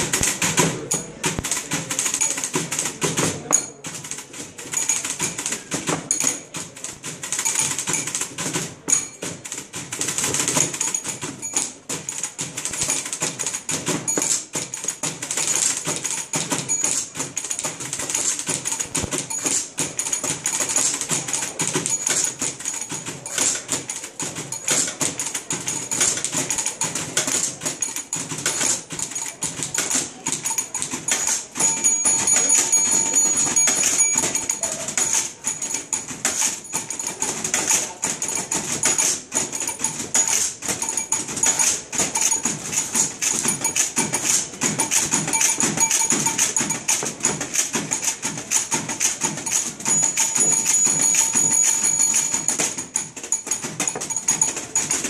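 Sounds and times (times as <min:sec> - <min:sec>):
typewriter keys clattering: 0:00.0 - 0:55.0.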